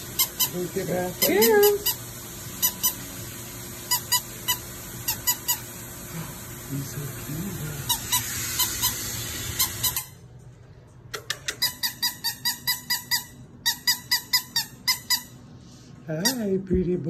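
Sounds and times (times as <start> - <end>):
squeaky dog toy squeaking: 0.2 - 2.0, 7.9 - 10.2, 11.5 - 15.4, 16.2 - 16.6
steady hiss: 1.8 - 9.6.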